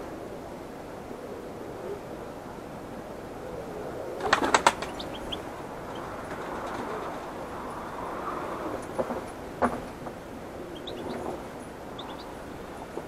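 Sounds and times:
finch wingbeats: 0:04.2 - 0:07.4, 0:10.6 - 0:13.0.

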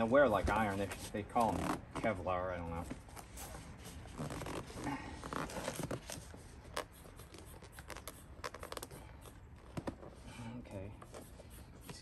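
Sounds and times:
fabric rustling and scraping: 0:02.8 - 0:06.9.

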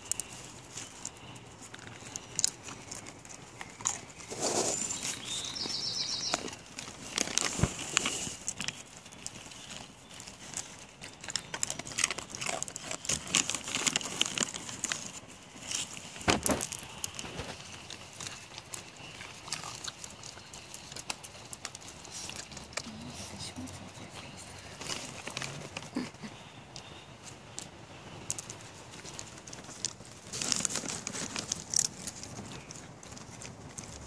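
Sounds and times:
dogs crunching and chewing: 0:00.0 - 0:34.0
dogs sniffing: 0:00.2 - 0:05.9.

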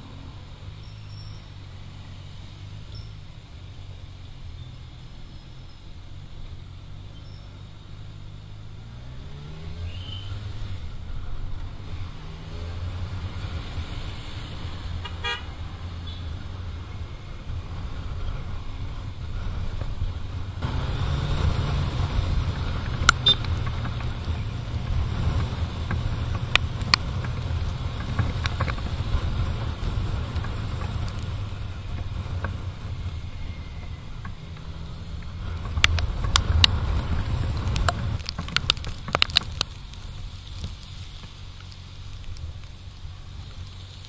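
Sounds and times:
wind and road noise: 0:00.0 - 0:44.0
motorcycle engine revving: 0:04.2 - 0:39.9
vehicle horn toot: 0:15.0 - 0:16.3, 0:23.2 - 0:23.4.

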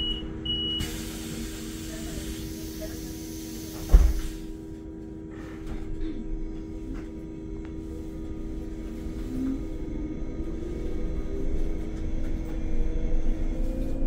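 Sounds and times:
electric bus hum: 0:00.0 - 0:14.0
hiss: 0:00.8 - 0:04.5.

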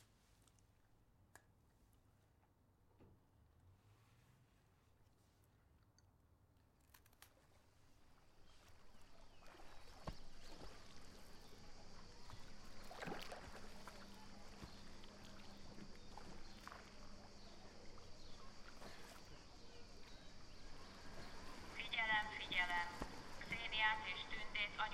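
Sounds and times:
gentle water lapping: 0:07.0 - 0:24.9.

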